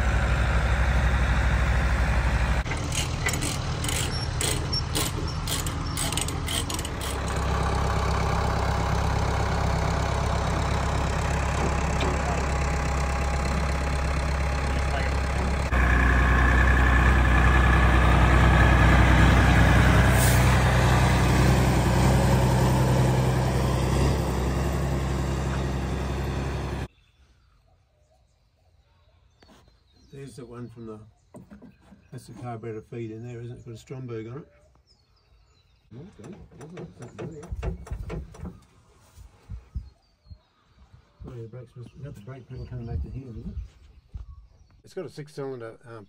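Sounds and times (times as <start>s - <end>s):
louder truck engine moving: 0.0s - 26.9s
truck engine running: 0.0s - 26.9s
sharp metallic chain clicks: 2.8s - 7.4s.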